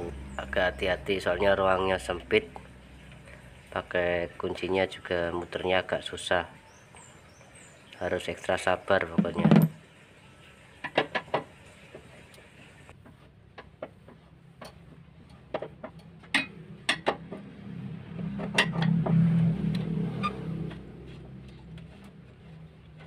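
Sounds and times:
low hum: 16.0 - 23.0.

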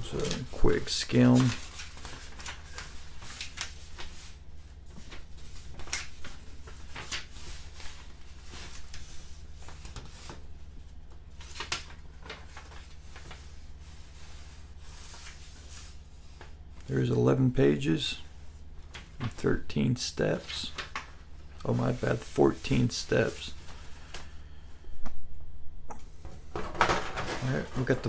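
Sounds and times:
paper pages rustling: 0.1 - 16.6, 20.4 - 24.3.

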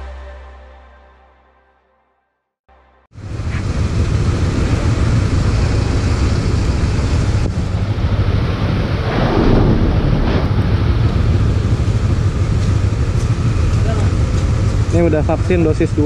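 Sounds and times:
vehicle noise: 3.1 - 16.0
wind rumble on microphone: 3.2 - 16.0.

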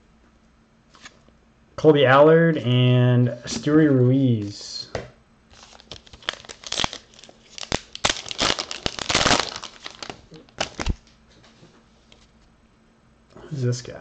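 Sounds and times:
wrapper tearing and crinkling: 5.5 - 11.1.

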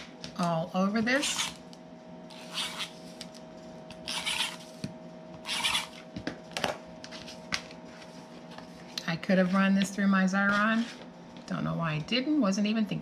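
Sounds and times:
tape runner rasping on paper: 2.3 - 3.0, 4.0 - 4.8, 5.4 - 6.0.

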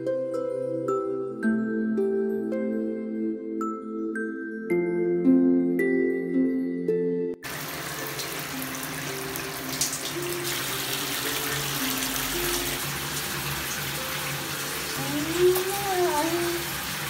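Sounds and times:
tap water filling a tub: 7.4 - 17.0.

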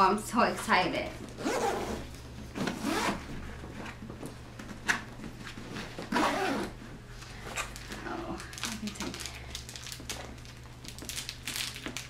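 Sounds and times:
bag handling sounds: 1.2 - 12.0
bag zipper strokes: 1.4 - 3.3, 6.1 - 6.8.

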